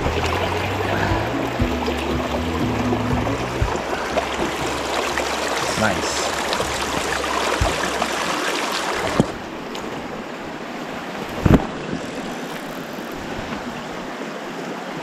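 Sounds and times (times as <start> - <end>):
creek rushing over stones: 0.0 - 15.0
dull thumps: 1.0 - 9.4.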